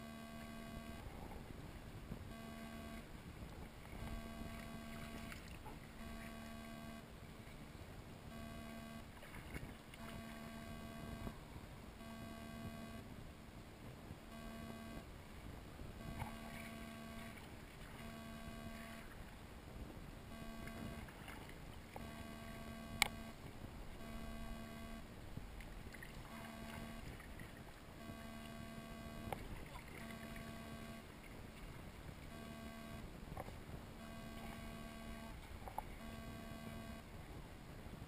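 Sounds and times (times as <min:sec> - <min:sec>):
thin tone: 0:00.0 - 0:01.3, 0:02.2 - 0:03.2, 0:03.8 - 0:07.2, 0:08.2 - 0:13.1, 0:14.3 - 0:15.1, 0:16.0 - 0:19.3, 0:20.3 - 0:25.1, 0:25.9 - 0:31.2, 0:32.2 - 0:37.2
water lapping faintly: 0:00.0 - 0:38.0.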